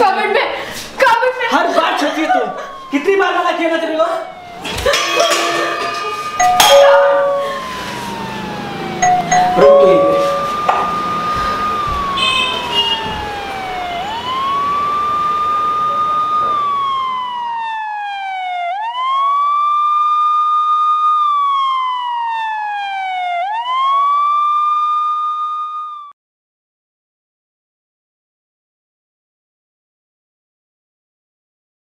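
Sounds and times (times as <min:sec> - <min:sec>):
emergency siren wailing: 0:01.2 - 0:26.1.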